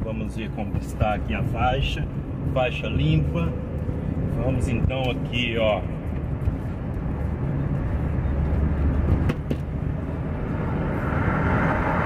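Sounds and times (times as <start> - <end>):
car road and engine rumble: 0.0 - 12.0
heavy truck passing: 5.9 - 12.0.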